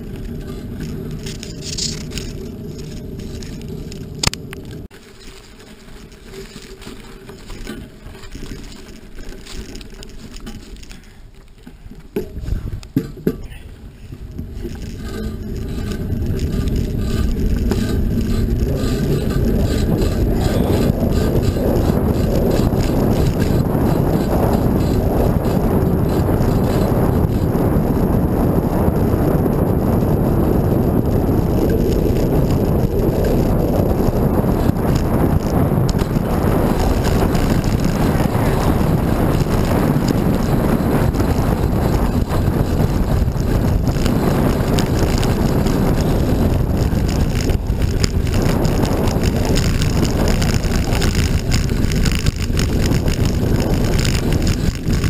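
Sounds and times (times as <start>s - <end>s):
low road rumble: 0.0s - 55.0s
wind buffeting microphone: 11.8s - 55.0s.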